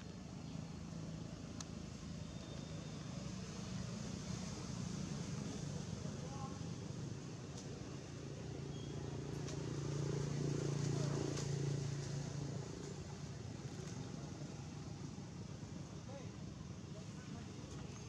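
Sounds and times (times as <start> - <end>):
faint clicks: 1.5 - 1.8
distant vehicle engine passing: 8.0 - 15.8.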